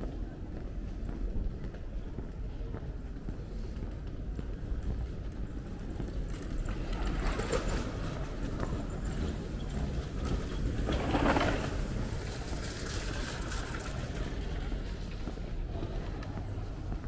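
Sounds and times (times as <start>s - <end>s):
low city rumble: 0.0s - 17.0s
bicycles rolling over cobblestones: 3.5s - 17.0s.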